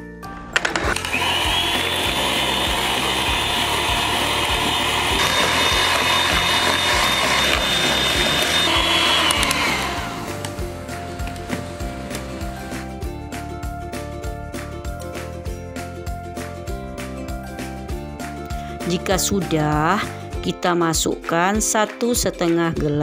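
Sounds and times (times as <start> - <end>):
background music with beat: 0.0 - 23.0
electric hand mixer whining: 0.6 - 13.2.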